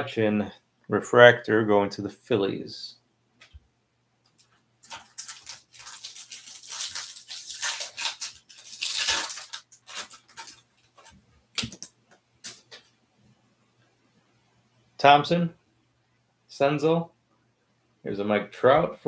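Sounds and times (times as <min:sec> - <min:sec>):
foil wrapper crinkling and tearing: 0:04.8 - 0:11.9.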